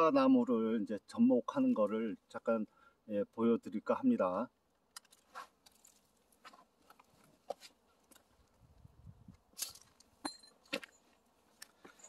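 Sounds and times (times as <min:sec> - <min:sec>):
light ringing clinks: 0:09.6 - 0:11.1.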